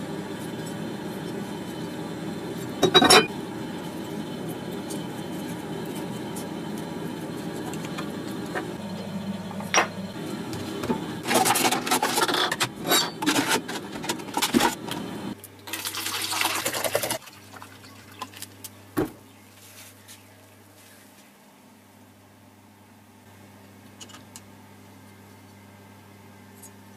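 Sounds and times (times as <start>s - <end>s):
liquid pouring into bottle: 15.7s - 18.4s.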